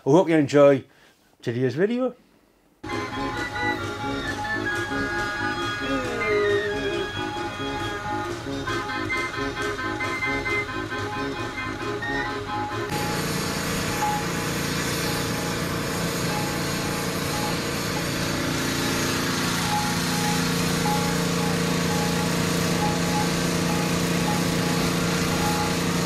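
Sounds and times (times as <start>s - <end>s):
background music: 2.8s - 13.0s
small engine running: 2.8s - 26.0s.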